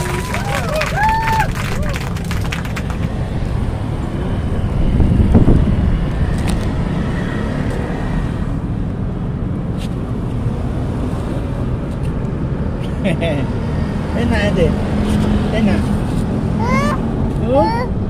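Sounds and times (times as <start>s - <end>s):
low rumble of street traffic: 0.0s - 18.0s
wind buffeting microphone: 1.0s - 7.4s.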